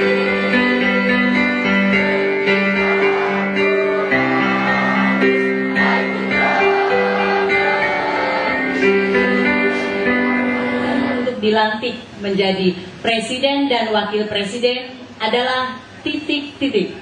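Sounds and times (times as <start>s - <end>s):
choir singing: 0.0s - 11.4s
piano accompaniment: 0.0s - 11.8s.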